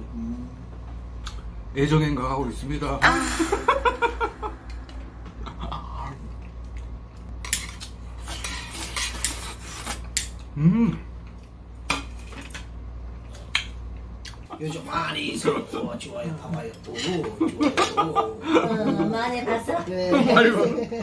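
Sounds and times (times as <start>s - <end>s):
chopsticks scraping ceramic plate: 7.5s - 10.3s.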